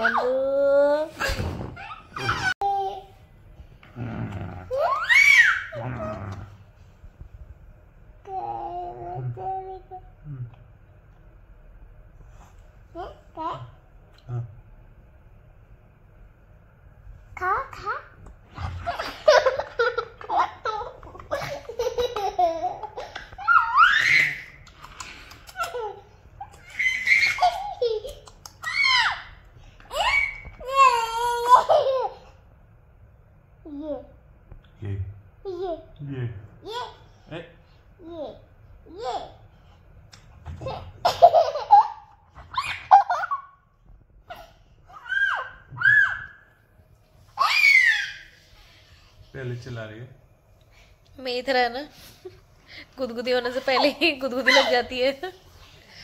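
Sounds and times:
toddler laughing and giggling: 25.5 - 28.7.

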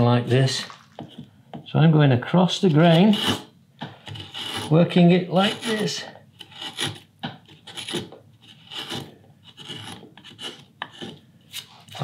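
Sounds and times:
gouge scraping wood: 2.6 - 12.0.

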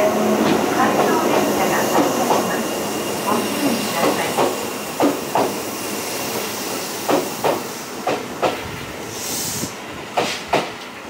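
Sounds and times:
train wheels clacking: 0.0 - 5.7, 6.3 - 9.5, 10.1 - 11.0
train running noise: 0.0 - 11.0
short hiss: 9.1 - 10.5.

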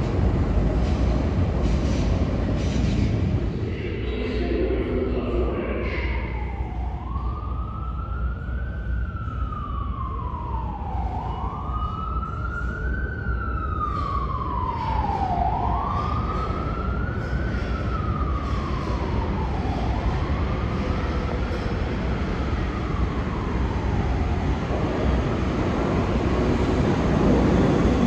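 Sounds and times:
steady low rumble: 0.0 - 14.6, 15.2 - 28.0
siren wailing: 5.8 - 28.0.

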